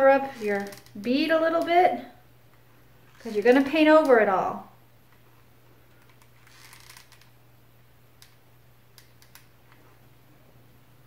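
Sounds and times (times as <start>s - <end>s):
low steady hum: 0.0s - 11.0s
small clicks: 8.2s - 9.8s.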